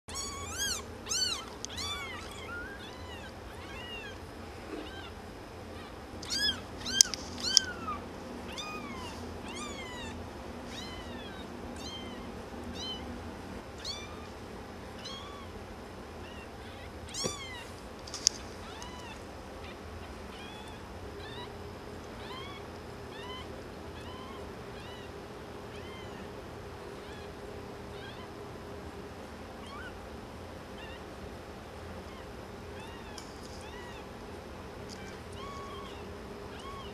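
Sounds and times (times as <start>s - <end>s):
kittens mewing: 0.1s - 13.2s, 15.0s - 15.5s, 16.2s - 21.6s, 22.2s - 26.4s, 32.0s - 34.2s, 34.9s - 36.9s.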